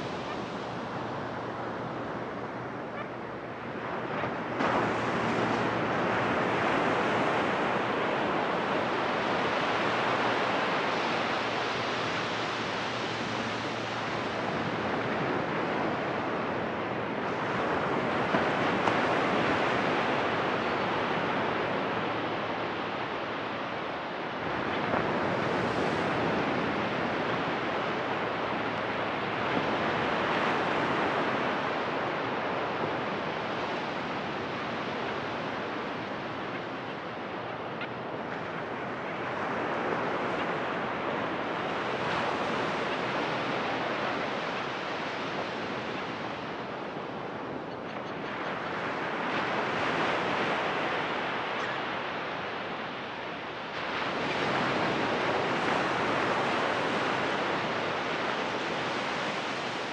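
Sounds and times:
ocean surf washing up beach: 0.0 - 59.9.

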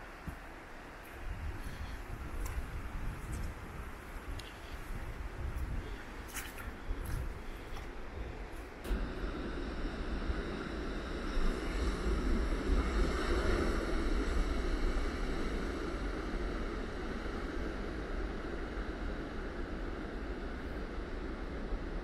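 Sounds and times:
wind rumble on microphone: 0.0 - 22.0
sea surf breaking over rocks: 8.7 - 18.3.

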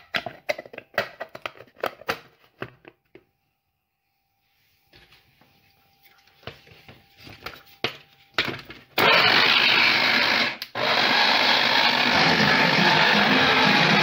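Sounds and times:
electric blender running: 9.0 - 14.0.

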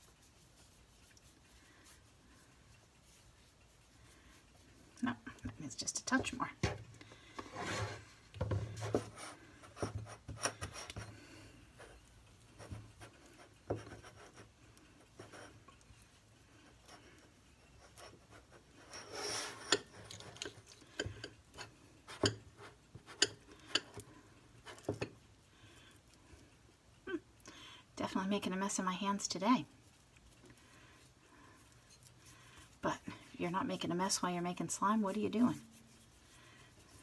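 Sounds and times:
stick scraping glass bowl: 18.8 - 21.3.

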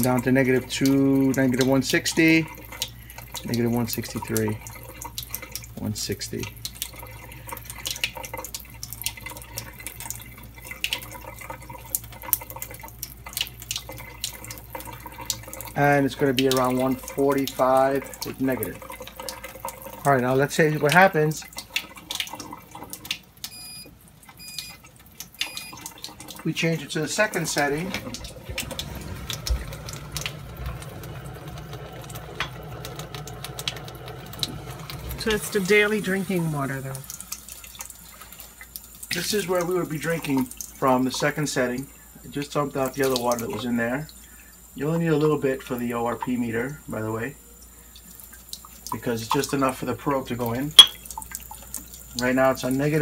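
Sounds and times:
water trickling into a sink: 0.0 - 53.0
low machine hum: 23.5 - 48.3
water rushing: 25.4 - 37.4.

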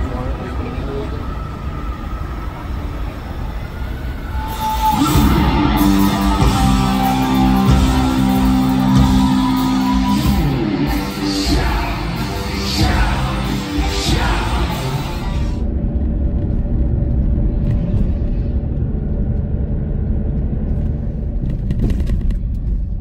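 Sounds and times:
crowd noise: 0.0 - 15.8
live rock band playing: 4.5 - 15.6.

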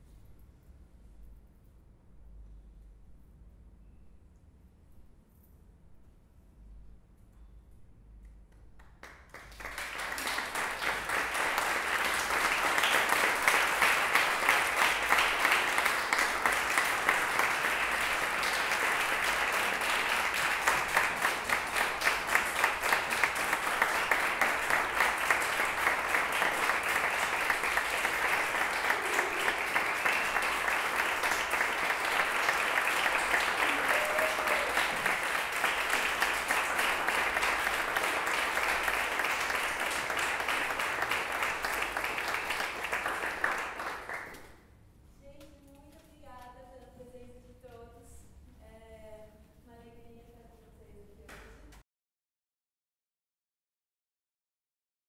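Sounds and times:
audience applauding: 8.8 - 44.5.

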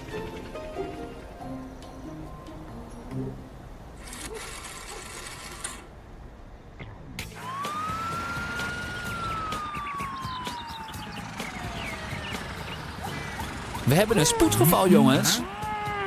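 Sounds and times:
cartoon siren rising and falling: 7.4 - 16.0.

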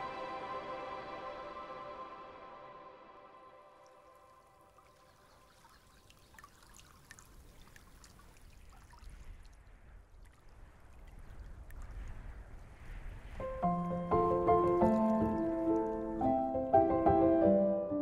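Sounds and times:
drips and splashes: 3.8 - 16.4
water lapping among rocks: 4.6 - 16.2.

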